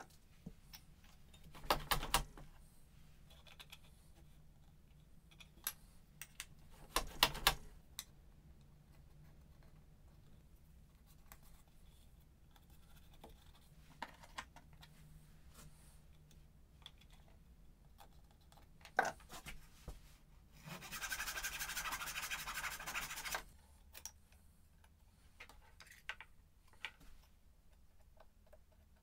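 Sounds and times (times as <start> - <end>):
hands rubbing masking tape: 20.7 - 23.4.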